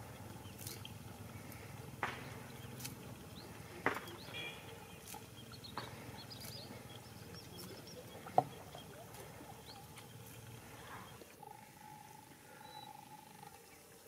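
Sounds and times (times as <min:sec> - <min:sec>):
small birds chirping: 0:00.0 - 0:11.3
blade snipping herbs: 0:00.5 - 0:03.0.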